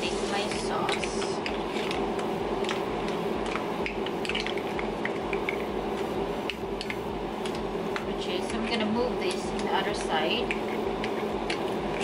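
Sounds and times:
steady hum: 0.0s - 12.0s.

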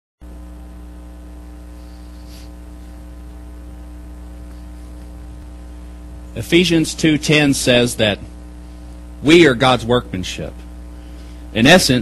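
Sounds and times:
electrical mains hum: 0.2s - 12.0s
faint short hiss: 1.7s - 3.0s.

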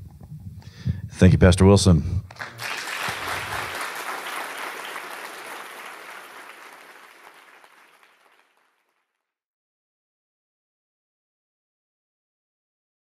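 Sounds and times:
audience applauding: 2.3s - 9.0s.

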